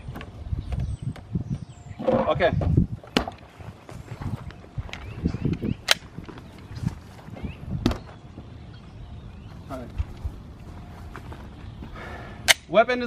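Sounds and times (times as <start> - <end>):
footsteps on grass: 3.4 - 8.5, 9.4 - 12.2.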